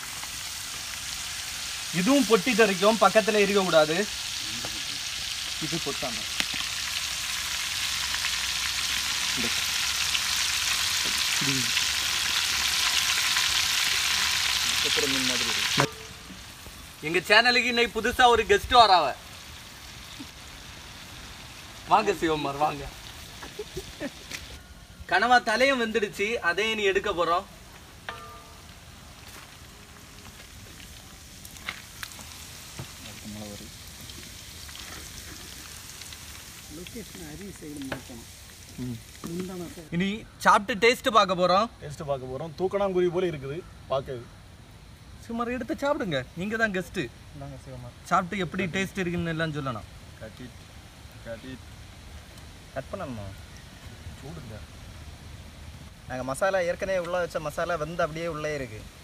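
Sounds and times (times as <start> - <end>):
oil crackling and popping: 0.0 - 24.6, 27.7 - 39.8, 50.2 - 53.6
deep-frying sizzle: 0.0 - 40.2, 44.7 - 59.0.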